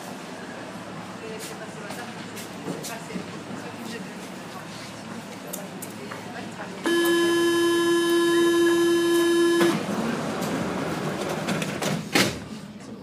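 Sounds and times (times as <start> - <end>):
door warning buzzer: 6.9 - 9.9.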